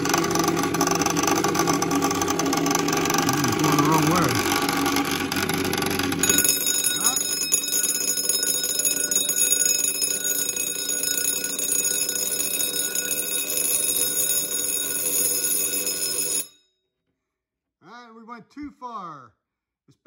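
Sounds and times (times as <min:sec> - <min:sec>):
fire alarm bell ringing: 0:00.0 - 0:16.8.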